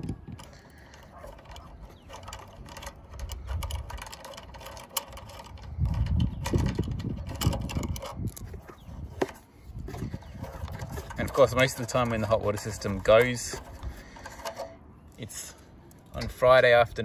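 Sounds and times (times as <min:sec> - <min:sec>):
hand clicking and scraping wires: 0:00.0 - 0:16.8
gusty low rumbling: 0:05.5 - 0:11.3.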